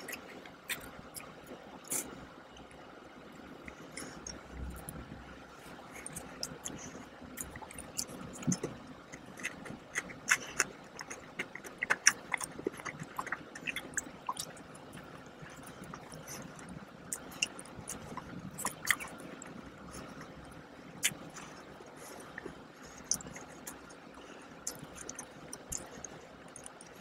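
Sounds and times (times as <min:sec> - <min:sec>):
biting and chewing: 0:00.0 - 0:02.1, 0:05.6 - 0:27.0
wet mouth clicks and smacks: 0:23.0 - 0:24.0, 0:24.6 - 0:27.0.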